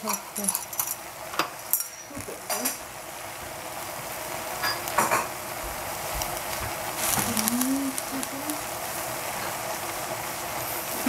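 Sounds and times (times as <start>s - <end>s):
utensil clinking against dishes: 0.0s - 2.8s, 4.6s - 5.3s
vegetables sizzling in a saucepan: 0.0s - 11.0s.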